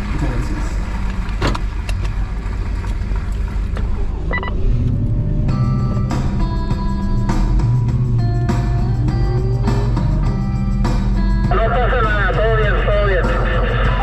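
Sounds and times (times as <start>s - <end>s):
vehicle engine rumbling: 0.0s - 14.0s
music with held notes: 5.0s - 14.0s.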